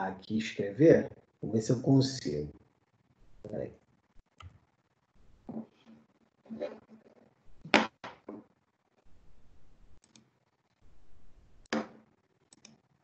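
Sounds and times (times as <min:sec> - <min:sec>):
computer mouse clicks: 0:10.0 - 0:10.3, 0:12.5 - 0:12.9.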